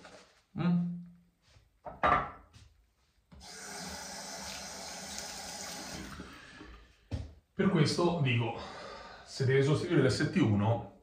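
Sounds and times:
tap running water into sink: 3.4s - 6.3s.

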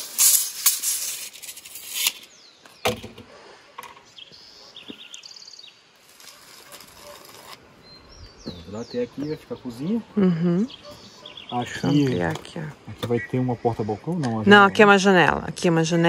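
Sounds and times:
tape measure retracting hiss: 0.0s - 2.4s, 5.9s - 7.6s
high bird chirps: 3.8s - 12.4s.

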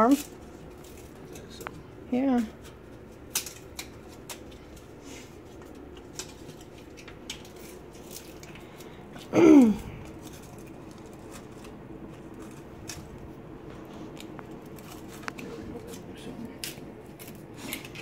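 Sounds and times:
kindling sticks clicking and snapping: 2.6s - 4.9s, 5.5s - 9.3s, 14.2s - 18.0s.

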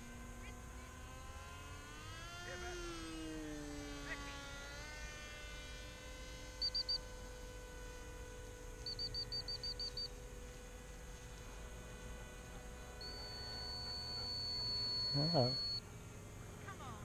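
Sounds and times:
steady electrical hum: 0.0s - 17.0s
continuous beep tone: 6.6s - 7.1s, 8.8s - 10.1s, 13.0s - 15.8s
short high electronic beeps: 13.0s - 15.8s.

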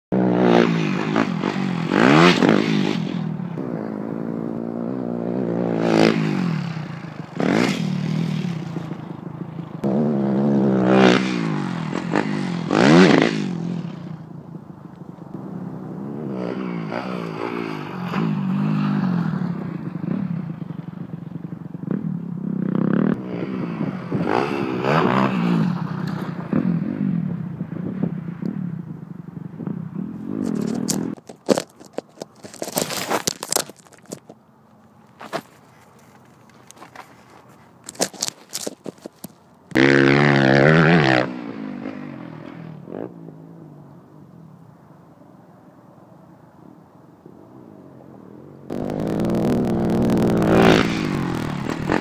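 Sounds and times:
dirt bike engine revving: 0.1s - 9.0s, 9.8s - 14.0s, 39.7s - 42.6s, 48.7s - 52.0s.

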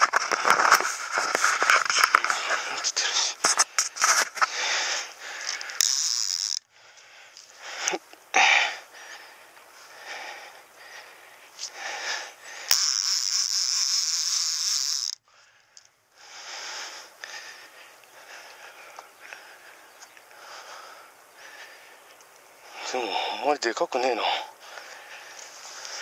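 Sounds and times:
reel drag buzzing: 0.0s - 6.7s, 9.9s - 15.9s
fishing reel clicking and whirring: 3.8s - 6.7s, 12.6s - 15.9s.

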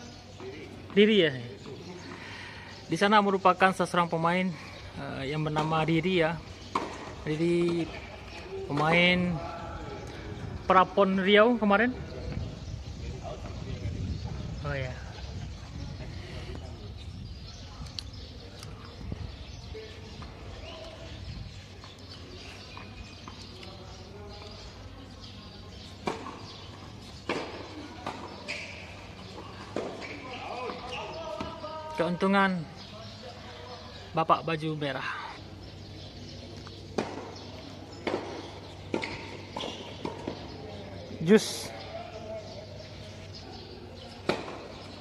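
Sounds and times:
birds chirping: 0.0s - 45.0s
tennis ball struck and bouncing: 6.7s - 7.8s, 36.9s - 40.5s, 44.2s - 44.8s
wind rumble on microphone: 9.4s - 10.8s, 11.9s - 21.8s.

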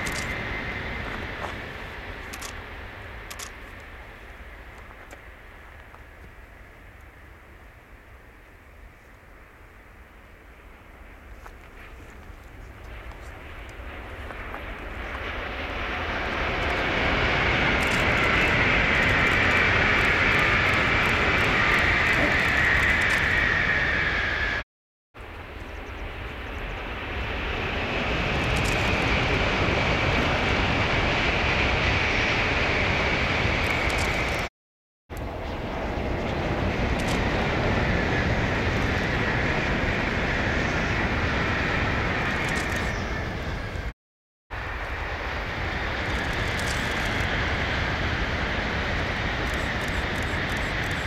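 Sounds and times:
high train whine: 0.0s - 24.6s, 25.2s - 34.5s, 35.1s - 43.9s, 44.5s - 51.0s
train rushing past: 12.9s - 24.6s, 26.1s - 34.5s, 35.2s - 43.9s, 44.5s - 51.0s.

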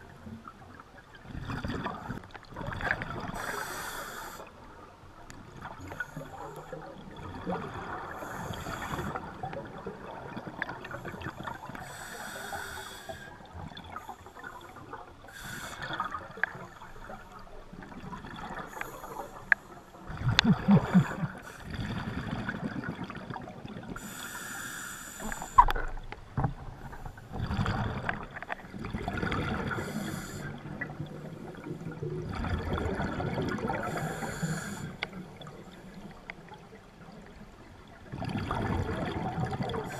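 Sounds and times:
underwater gurgling: 0.0s - 39.9s
scuba regulator breathing: 3.4s - 4.6s, 8.1s - 9.4s, 10.9s - 16.5s, 18.6s - 21.8s, 24.0s - 25.8s, 29.6s - 30.8s, 33.7s - 35.2s
low bubbling rumble: 20.0s - 23.7s, 25.7s - 33.8s.

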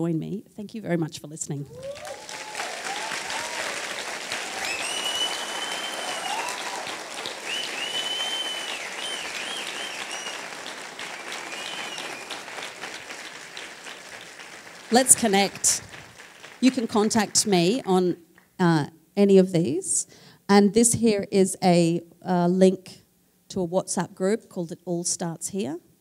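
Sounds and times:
audience applauding: 1.7s - 17.9s
high-pitched calls: 1.8s - 12.7s.

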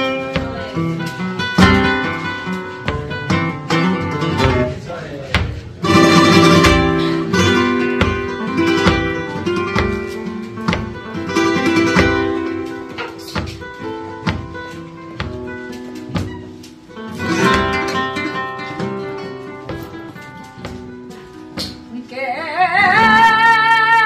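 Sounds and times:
flamenco guitar playing: 0.0s - 24.0s.

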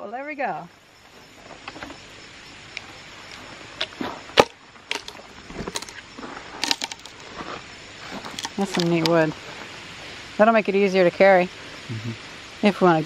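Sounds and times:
wood knocking and cracking: 4.4s - 5.9s, 6.6s - 7.2s.

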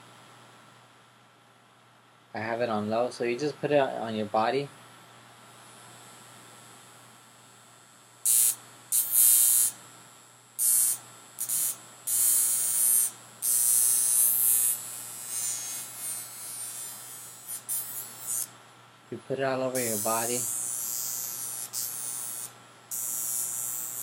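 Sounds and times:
electric sparks crackling on skin: 8.2s - 9.8s, 10.6s - 18.5s, 19.7s - 24.0s.

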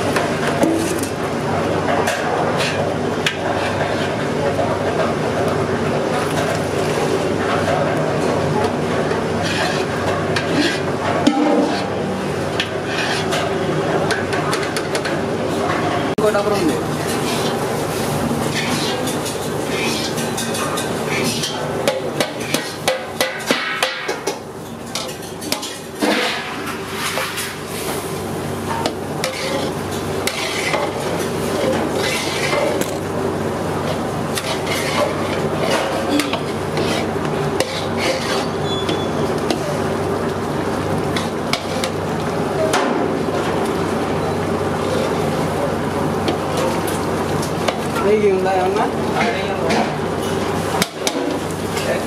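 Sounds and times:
metal utensils clinking on pots: 18.5s - 27.3s, 34.3s - 37.0s.

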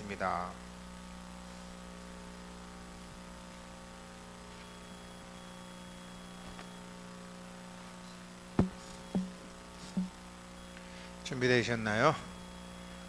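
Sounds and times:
electrical mains hum: 0.0s - 13.0s
faint taps: 8.6s - 10.2s.

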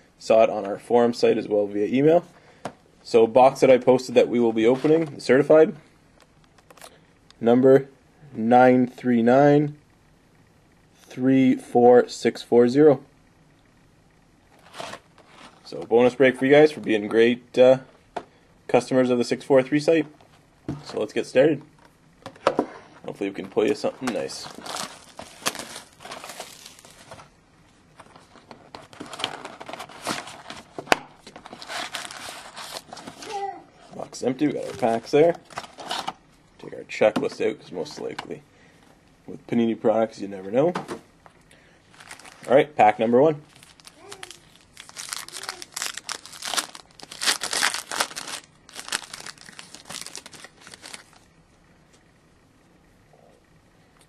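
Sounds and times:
plastic wrapper crinkling and tearing: 23.8s - 27.2s, 31.3s - 33.3s, 41.9s - 42.6s, 43.4s - 51.3s.

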